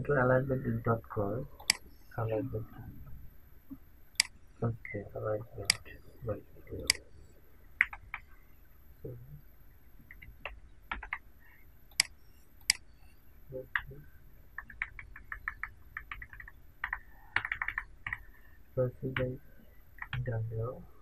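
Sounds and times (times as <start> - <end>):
mouse clicks: 4.2 - 4.4.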